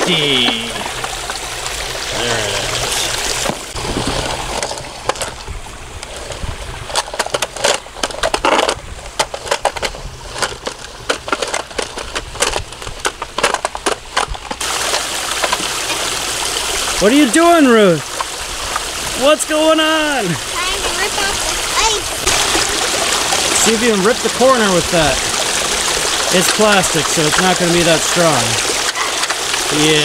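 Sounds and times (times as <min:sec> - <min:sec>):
small waterfall running: 0:00.0 - 0:05.8, 0:14.6 - 0:30.0
ice chunks crunching: 0:20.2 - 0:30.0.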